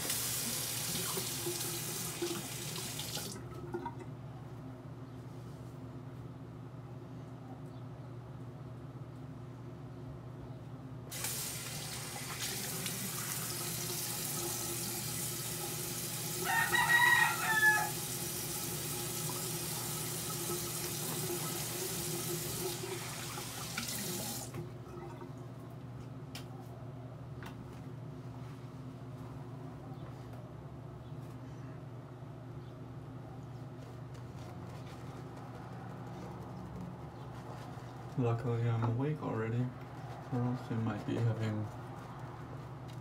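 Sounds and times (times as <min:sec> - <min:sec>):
sink tap running: 0:00.0 - 0:03.9, 0:11.1 - 0:16.4, 0:17.9 - 0:24.6
rooster crowing: 0:16.4 - 0:18.2.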